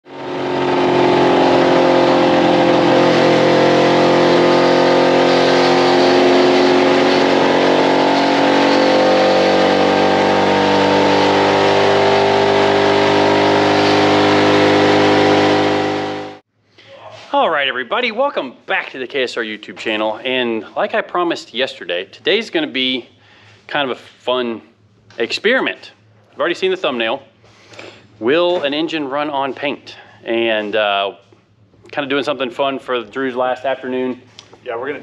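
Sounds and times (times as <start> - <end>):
pickup truck engine revving: 0.0 - 16.4.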